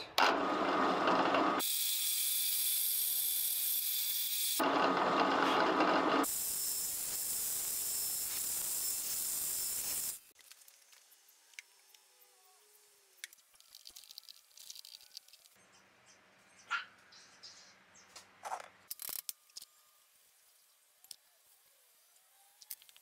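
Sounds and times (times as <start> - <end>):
drill press boring into wood: 0.2 - 1.8, 4.6 - 10.1.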